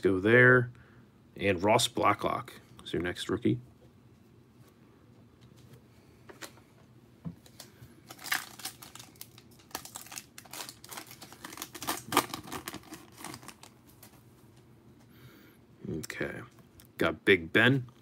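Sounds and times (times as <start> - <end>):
wrapper crinkling and tearing: 7.5 - 14.2.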